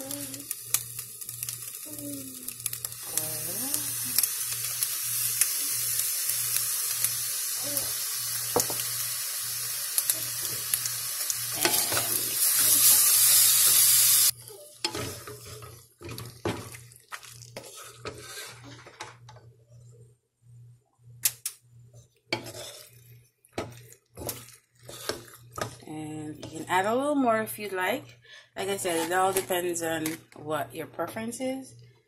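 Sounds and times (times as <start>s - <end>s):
pasta sizzling in a pot: 0.0s - 19.4s, 22.3s - 25.8s
wooden spatula scraping a pot: 14.8s - 19.3s, 22.3s - 25.8s, 28.6s - 30.2s.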